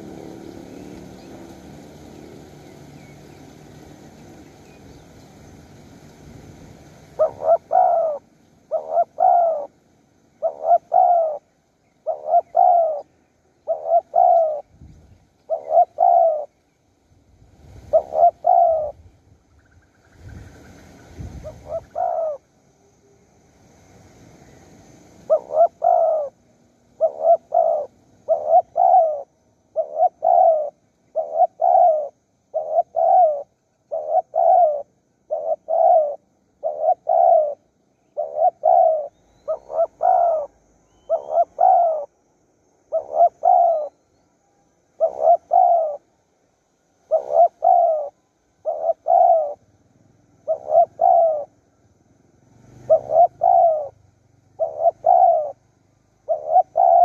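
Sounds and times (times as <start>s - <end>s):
dove cooing: 0.0s - 3.4s, 7.1s - 9.8s, 10.4s - 14.8s, 15.4s - 16.6s, 17.8s - 19.0s, 21.4s - 22.5s, 25.2s - 42.1s, 42.8s - 44.0s, 45.0s - 46.2s, 47.0s - 49.7s, 50.3s - 51.6s, 52.7s - 55.6s, 56.2s - 57.0s.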